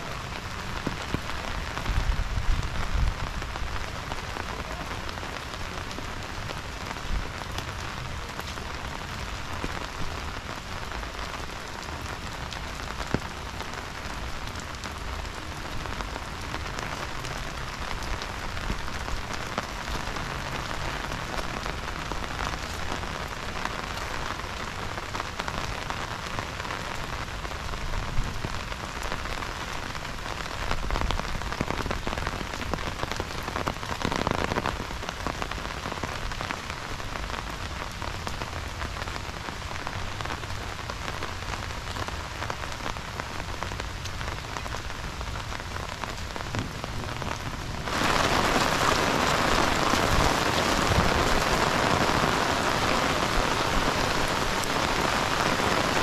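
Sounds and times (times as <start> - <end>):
heavy rain falling: 0.0 - 56.0.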